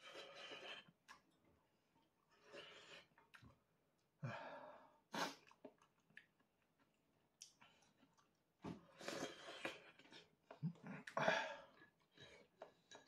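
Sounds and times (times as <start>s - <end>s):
person chewing: 5.2s - 11.2s.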